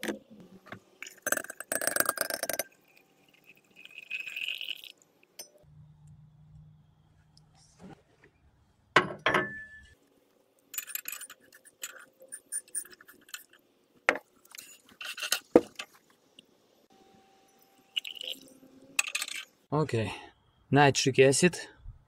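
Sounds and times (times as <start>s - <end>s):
glassware clinking and rattling: 9.0s - 10.0s.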